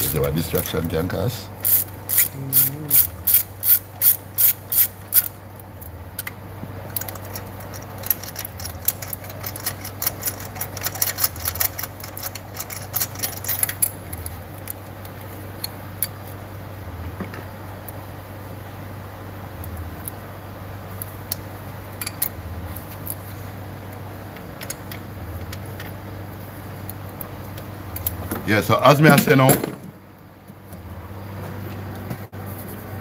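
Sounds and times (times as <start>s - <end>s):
steady low hum: 0.0s - 33.0s
socket ratchet clicking: 1.6s - 2.3s, 2.9s - 14.8s.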